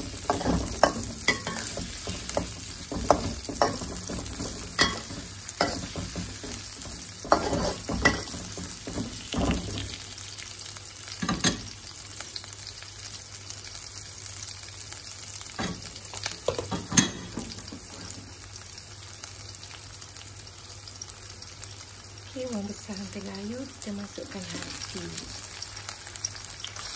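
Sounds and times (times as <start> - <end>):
spatula scraping and knocking wok: 0.0 - 10.0
vegetables sizzling in hot oil: 0.0 - 26.9.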